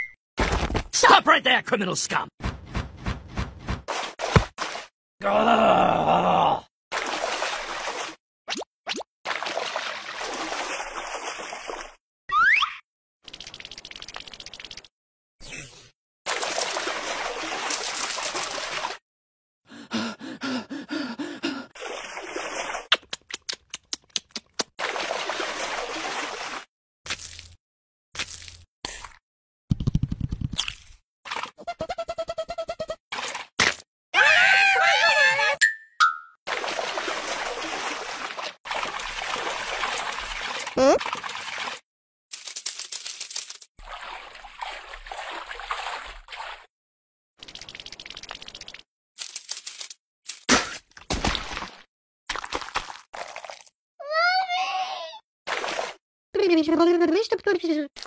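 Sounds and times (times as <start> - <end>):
water splashing and trickling: 3.9 - 4.9, 6.9 - 12.0, 13.2 - 14.9, 16.3 - 19.0, 21.5 - 23.6, 24.2 - 27.6, 33.1 - 33.6, 36.5 - 46.7, 47.4 - 50.5, 51.1 - 53.8, 55.5 - 56.0
gasping voice sounds: 5.2 - 6.7, 19.7 - 21.8.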